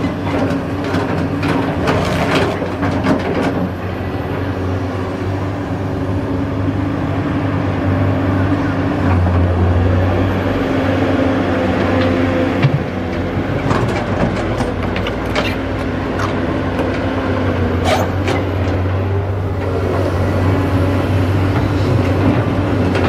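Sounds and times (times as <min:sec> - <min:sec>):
excavator diesel engine running: 0:00.0 - 0:23.0.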